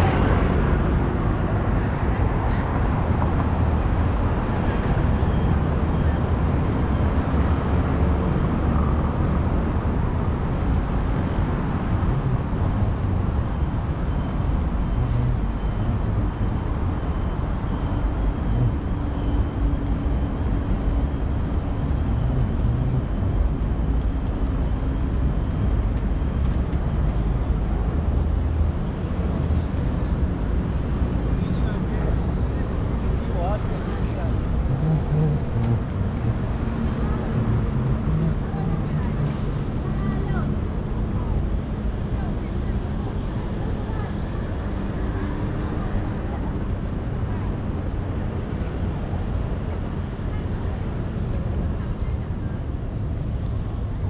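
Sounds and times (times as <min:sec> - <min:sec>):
road traffic rumble: 0:00.0 - 0:54.0.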